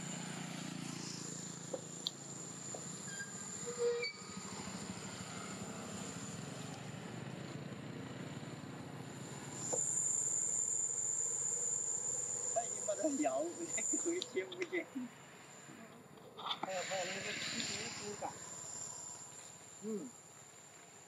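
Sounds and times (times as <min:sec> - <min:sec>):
high-pitched insect buzz: 0:00.7 - 0:06.6, 0:09.4 - 0:15.7, 0:16.7 - 0:20.2.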